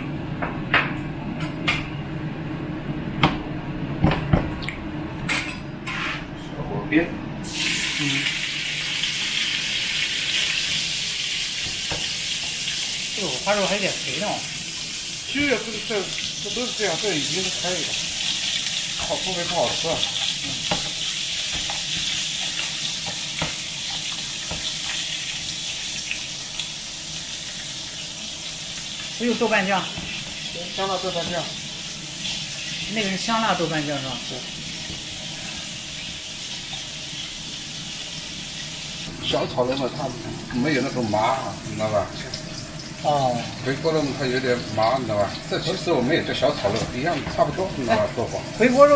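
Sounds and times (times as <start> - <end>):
meat sizzling in oil: 7.4 - 48.9
chopsticks tapping a pan: 19.0 - 25.0.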